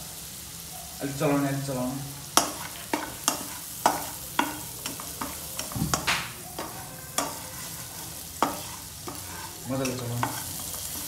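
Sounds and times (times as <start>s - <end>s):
food sizzling in oil: 0.0s - 11.0s
spatula scraping a wok: 2.2s - 11.0s.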